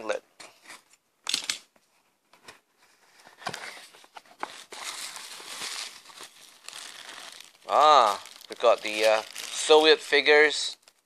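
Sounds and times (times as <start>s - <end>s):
bubble wrap crinkling: 4.4s - 11.0s.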